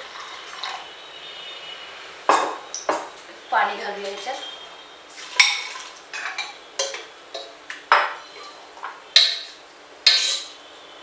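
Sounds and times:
metal spoon scraping pot: 0:08.2 - 0:08.7, 0:10.1 - 0:10.6.

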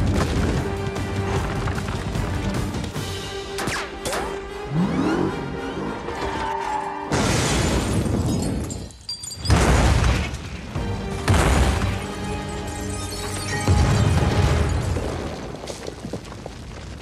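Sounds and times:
background music: 0:00.0 - 0:07.5, 0:10.1 - 0:15.0.

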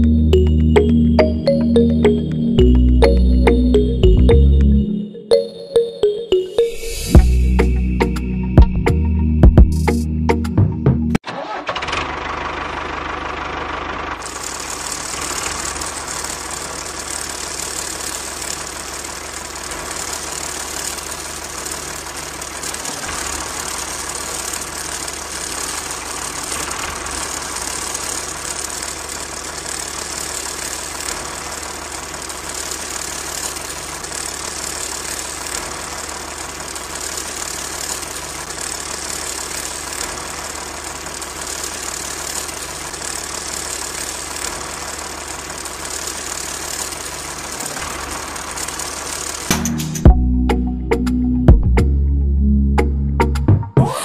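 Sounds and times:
small electric motor whirring: 0:14.2 - 0:49.5.

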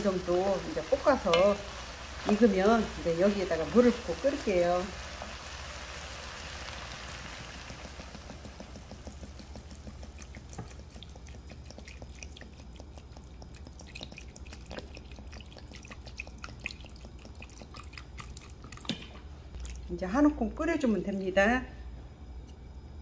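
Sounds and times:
water dripping: 0:07.6 - 0:20.0.

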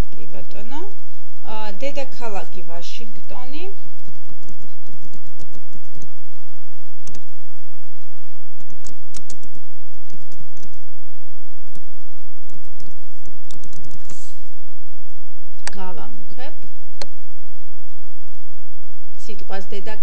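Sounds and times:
computer keyboard typing: 0:04.0 - 0:06.1, 0:08.6 - 0:10.8, 0:11.6 - 0:14.1.

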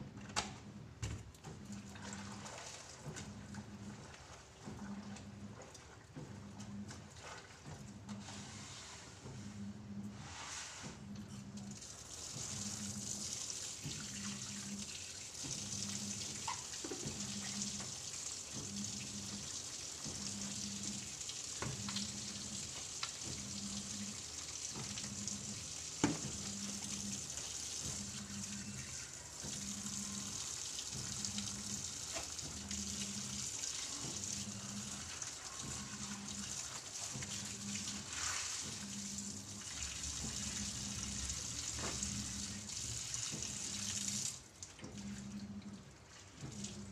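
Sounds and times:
clothes washed by hand: 0:01.2 - 0:46.9
tap water running and splashing: 0:01.3 - 0:08.2, 0:11.6 - 0:46.9.

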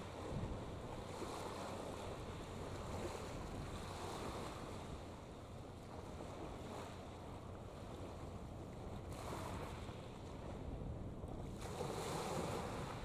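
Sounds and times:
wind buffeting microphone: 0:00.0 - 0:05.2.

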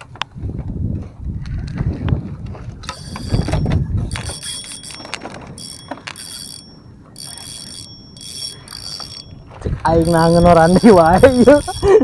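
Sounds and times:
fishing reel whirring: 0:02.9 - 0:12.0.

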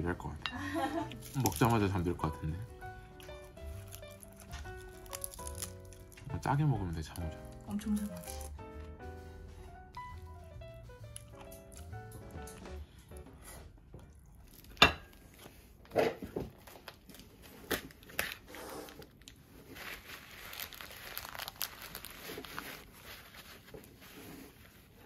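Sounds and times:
background music: 0:00.0 - 0:14.3
plastic bag crinkling: 0:00.8 - 0:08.6, 0:16.5 - 0:25.0
paper towels rustling: 0:16.5 - 0:25.0.

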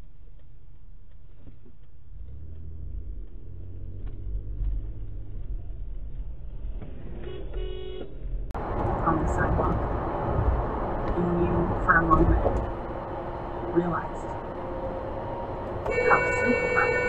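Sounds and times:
car engine rumble: 0:00.0 - 0:17.0
road noise: 0:00.0 - 0:17.0
car horn: 0:07.2 - 0:08.2, 0:15.8 - 0:17.0.

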